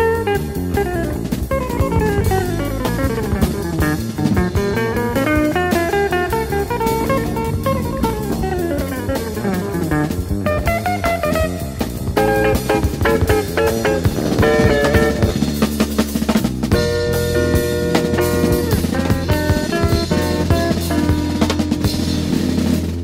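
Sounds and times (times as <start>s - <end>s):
drum kit: 0.0s - 23.0s
jazz guitar playing quick runs: 0.0s - 23.0s.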